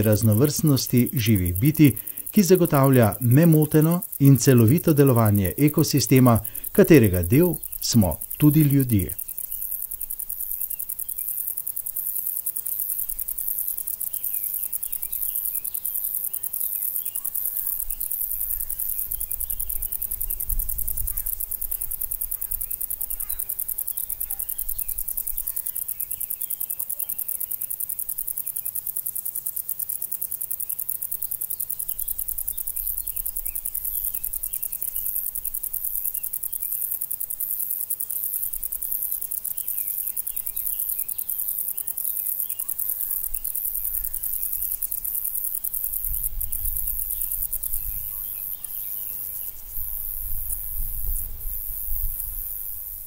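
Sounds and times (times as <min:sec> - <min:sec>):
crickets trilling: 0:00.0 - 0:53.0
short cricket chirps: 0:00.0 - 0:53.0.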